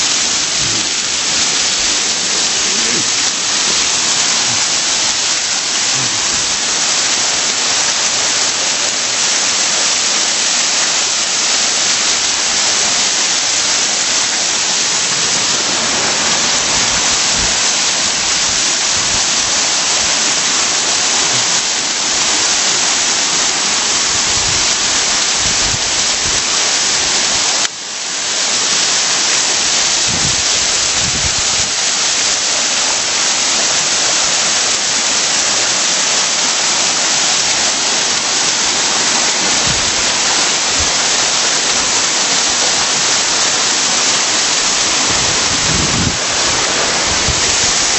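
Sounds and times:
waterfalls splashing into pool: 0:00.0 - 0:47.9.

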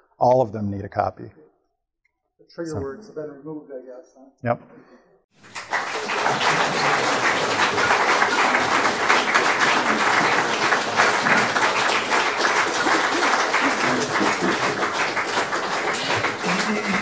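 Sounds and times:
audience applauding: 0:05.4 - 0:17.0.

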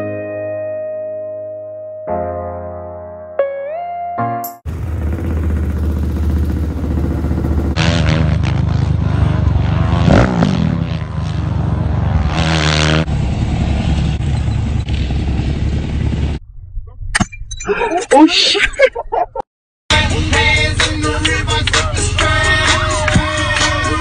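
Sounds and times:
quad engine revving: 0:04.7 - 0:16.4.

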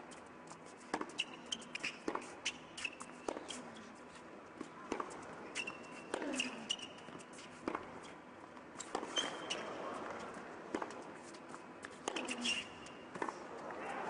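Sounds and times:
shoes squeaking on court: 0:00.0 - 0:14.0.

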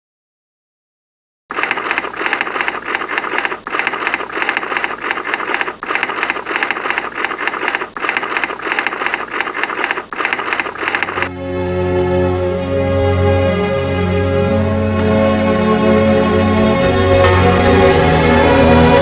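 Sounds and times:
fast mechanical ticking clatter: 0:01.5 - 0:11.3.

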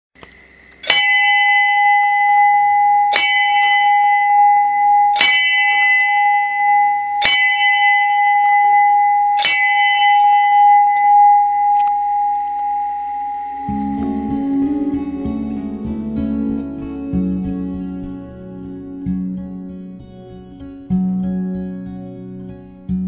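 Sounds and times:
temple bell clanging: 0:13.7 - 0:20.6.

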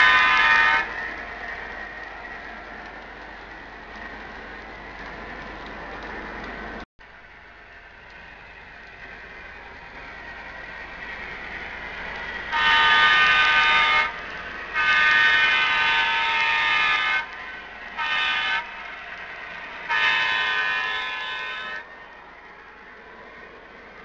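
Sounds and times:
model train running: 0:00.0 - 0:24.0
multi-chime diesel horn blasts: 0:12.5 - 0:14.2.

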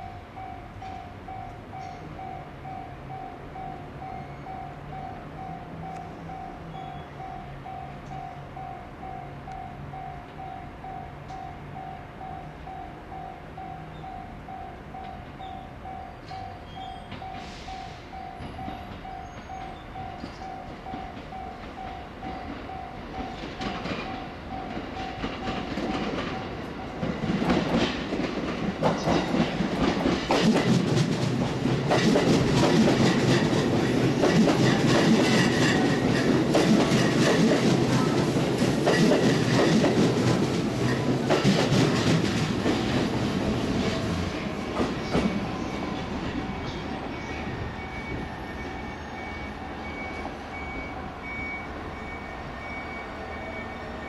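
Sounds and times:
wheels clacking over rail joints: 0:18.4 - 0:48.2.

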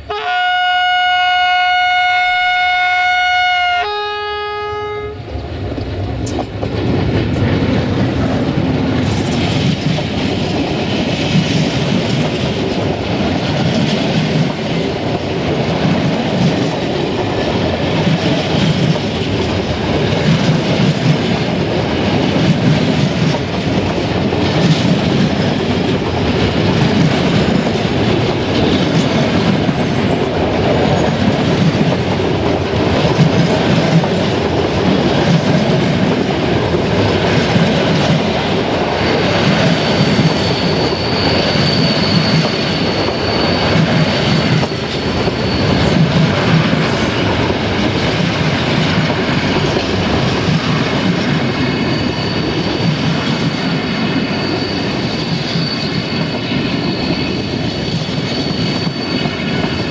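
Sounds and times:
freight train wagons rumbling: 0:05.1 - 0:59.9
high thin wheel squeal: 0:39.7 - 0:46.6, 0:51.4 - 0:59.9.

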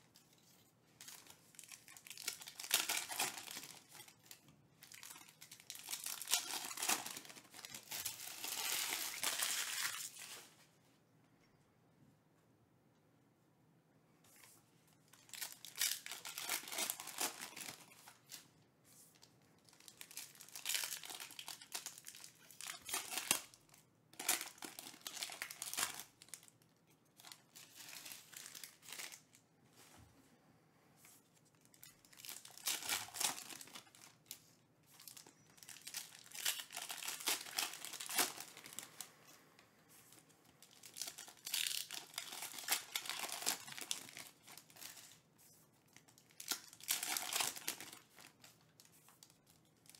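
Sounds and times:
foil wrappers crinkling and tearing: 0:00.1 - 0:10.5, 0:15.1 - 0:18.5, 0:19.2 - 0:29.4, 0:31.6 - 0:39.0, 0:40.1 - 0:49.9.

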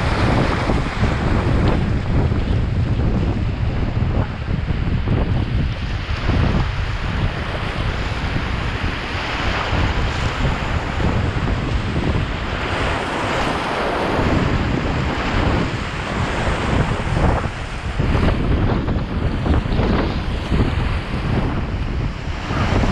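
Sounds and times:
wind buffeting microphone: 0:00.0 - 0:22.9.

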